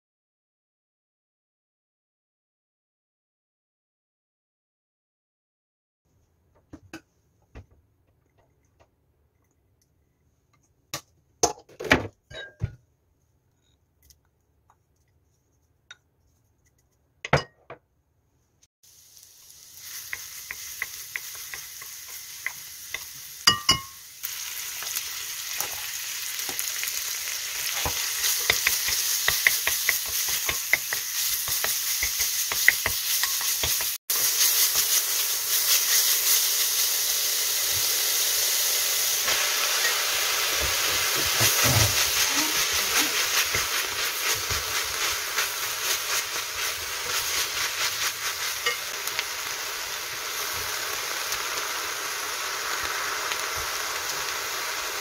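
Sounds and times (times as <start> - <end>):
knocks and clinks against pot: 12.3 - 12.8, 17.3 - 17.8
garlic sizzling in oil: 18.8 - 55.0
wooden spatula scraping: 40.5 - 49.2.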